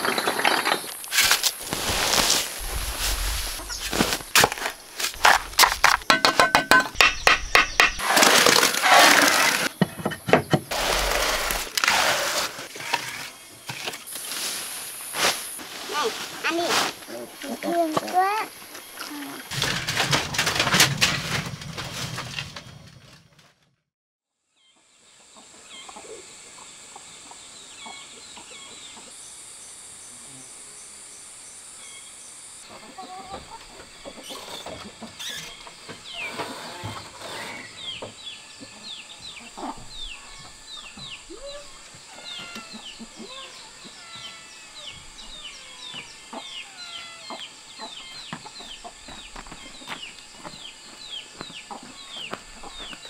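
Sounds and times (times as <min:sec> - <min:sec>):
high insect drone: 0:00.0 - 0:19.6, 0:24.6 - 0:53.0
chickens clucking: 0:02.6 - 0:08.1, 0:25.3 - 0:29.1, 0:32.6 - 0:36.5, 0:37.8 - 0:53.0.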